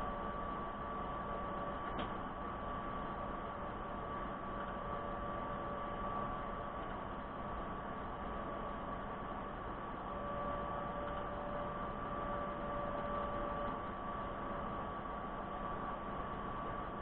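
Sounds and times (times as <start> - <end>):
steady hiss and electrical hum: 0.0 - 17.0
lower steady tone: 10.0 - 17.0.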